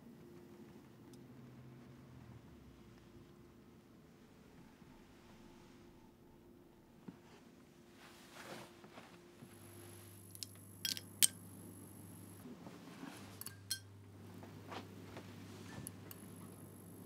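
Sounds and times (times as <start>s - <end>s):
low steady hum: 0.0s - 17.0s
small hard objects clicking: 10.3s - 11.3s.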